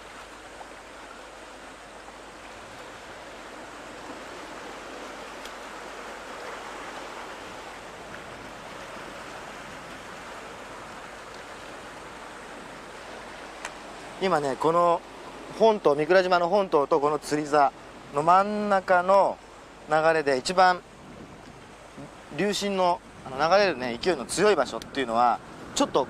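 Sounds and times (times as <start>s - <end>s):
surf washing against rocks: 0.0s - 26.0s.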